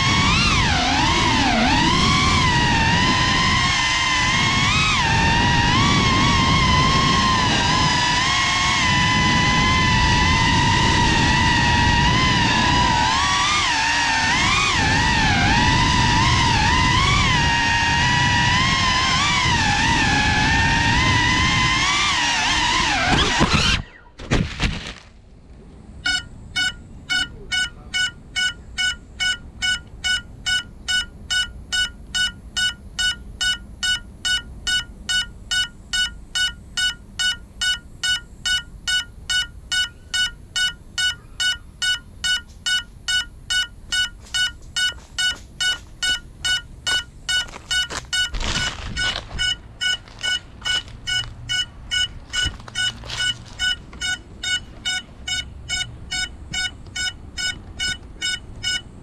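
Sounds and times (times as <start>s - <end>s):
drone motors whining: 0.0s - 24.2s, 25.9s - 59.0s
locator beeper beeping: 26.0s - 59.0s
handling noise: 43.9s - 55.3s.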